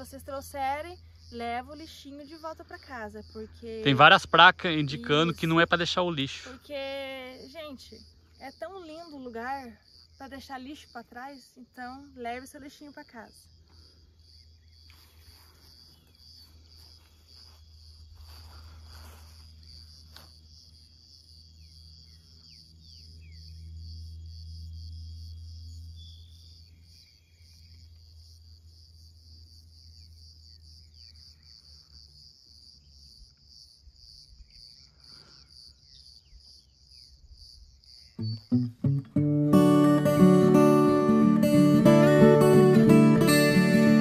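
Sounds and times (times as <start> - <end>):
insects trilling: 0.0 - 44.0
bird chirps: 21.6 - 24.2, 25.6 - 28.0, 37.9 - 39.0.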